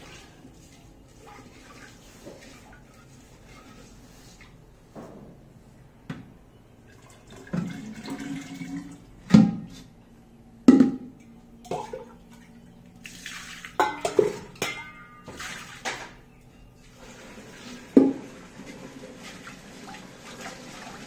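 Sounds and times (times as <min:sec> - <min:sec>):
liquid pouring into pot: 0:07.0 - 0:09.0
loud plops in clay pot: 0:10.7 - 0:11.1
metal bowl clinking in pot: 0:13.8 - 0:16.1.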